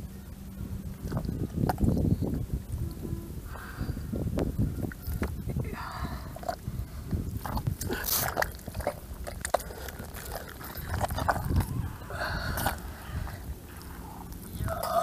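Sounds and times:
wet mud squelching: 6.2 - 15.0.

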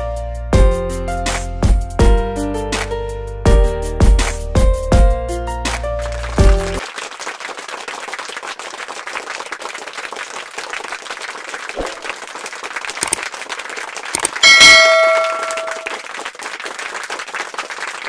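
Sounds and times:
applause: 5.7 - 18.0.

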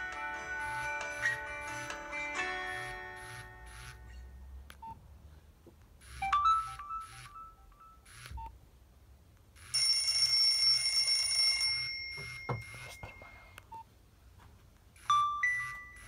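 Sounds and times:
buzzy electronic alert tone: 6.0 - 8.3
phone key beep: 15.1 - 16.0.

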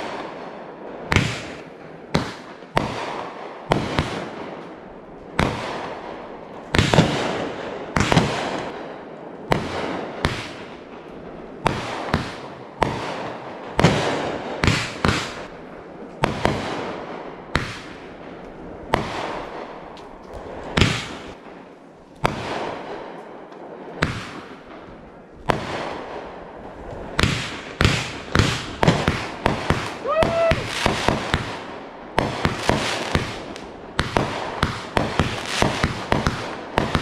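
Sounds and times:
fireworks bangs: 0.0 - 37.0.

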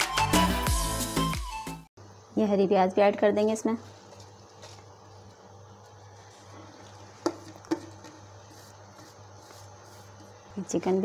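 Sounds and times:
faint hiss and hum: 2.0 - 11.0.

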